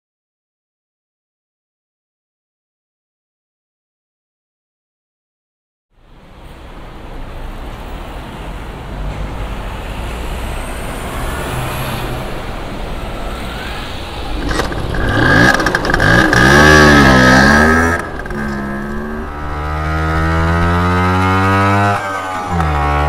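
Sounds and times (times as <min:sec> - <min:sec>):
street traffic: 0:05.9 - 0:23.0
steady high tone: 0:12.0 - 0:20.0
scooter engine revving: 0:14.1 - 0:23.0.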